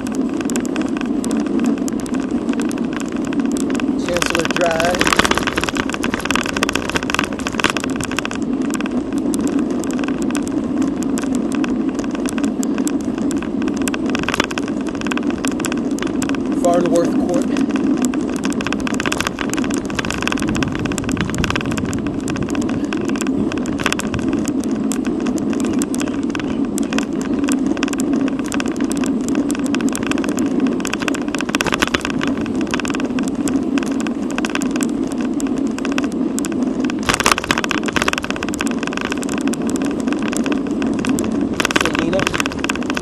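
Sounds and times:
small rattles of bike: 0.0s - 43.0s
tyre and road noise: 0.0s - 43.0s
wind rush on microphone: 0.0s - 43.0s.

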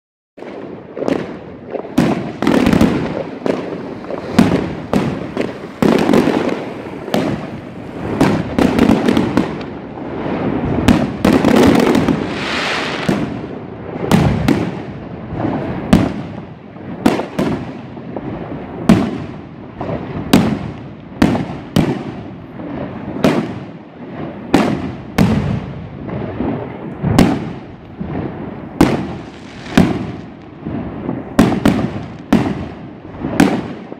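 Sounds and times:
continuous fireworks din: 0.4s - 33.9s
fireworks bangs: 0.4s - 33.9s.

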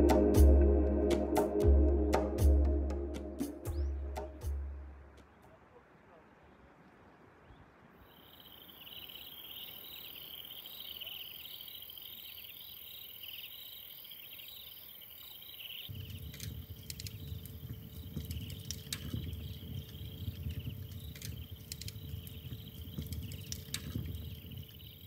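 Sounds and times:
steady high-pitched hiss: 7.8s - 25.0s
night insects chirping: 8.0s - 25.0s
wood fire crackling: 15.9s - 24.8s.

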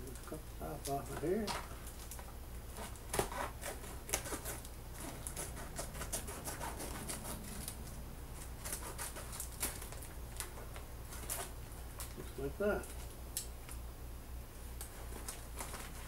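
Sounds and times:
paper bag tearing and crinkling: 2.7s - 11.6s.

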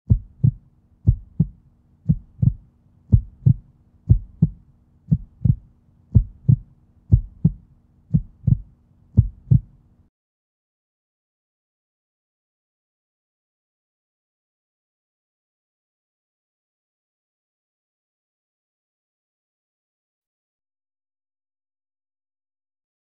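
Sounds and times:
heartbeat thumps: 0.1s - 9.7s
faint low hum: 0.1s - 10.1s.

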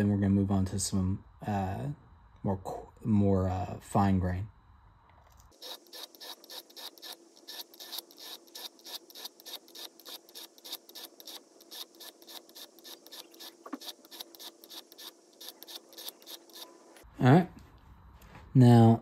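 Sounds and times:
blade scraping on sharpening stone: 5.6s - 17.0s.

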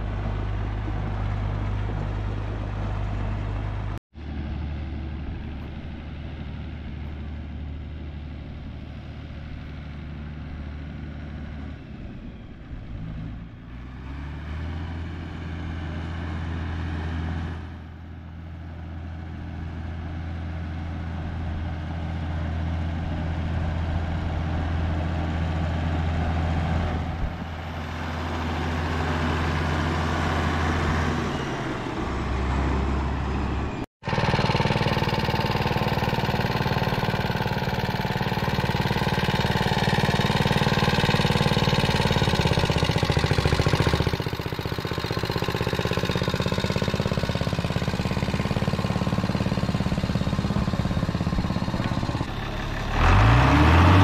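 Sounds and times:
tractor engine driving by: 0.0s - 54.0s
small garden tractor engine: 34.0s - 54.0s.

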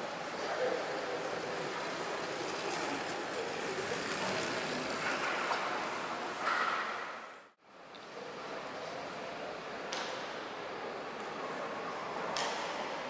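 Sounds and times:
track bikes rushing on velodrome: 0.0s - 7.5s.

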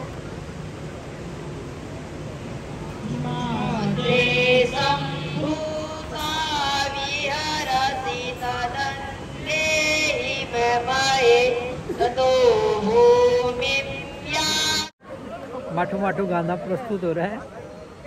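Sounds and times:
boys singing together: 3.1s - 14.9s.

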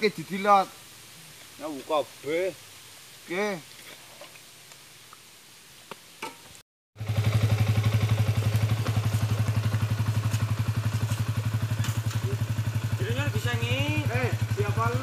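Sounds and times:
motorcycle engine idling: 7.0s - 15.0s.

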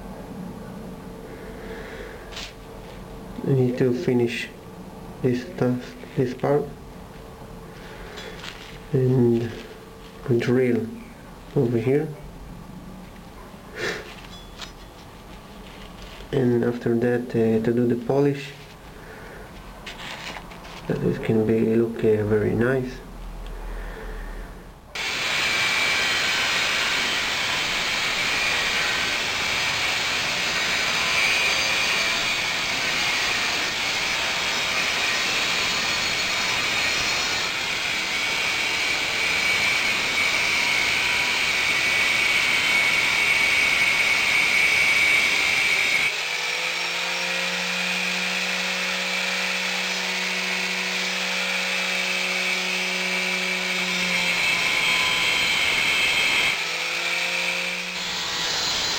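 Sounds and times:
angle grinder grinding metal: 25.0s - 58.9s.

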